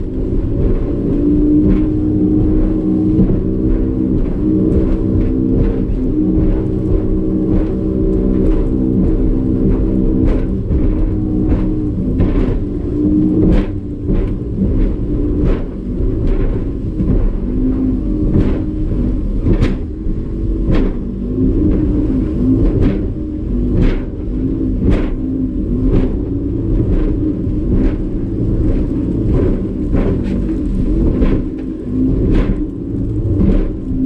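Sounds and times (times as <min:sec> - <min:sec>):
outboard motor running: 0:00.0 - 0:34.0.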